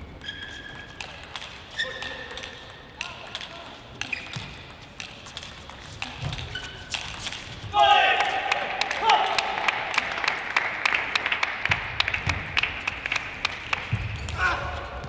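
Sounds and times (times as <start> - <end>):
shoes squeaking on floor: 0.0 - 2.5, 4.0 - 7.8
table tennis ball clicks: 0.2 - 7.4.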